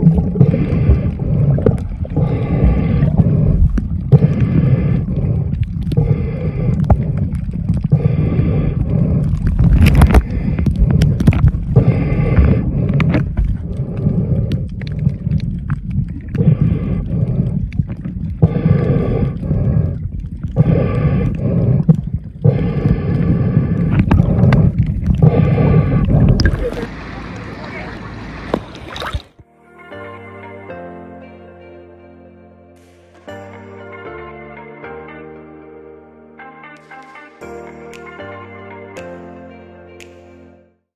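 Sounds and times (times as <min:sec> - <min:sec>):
breaths through a snorkel: 0:00.0 - 0:26.9
muffled underwater rumble: 0:00.0 - 0:29.4.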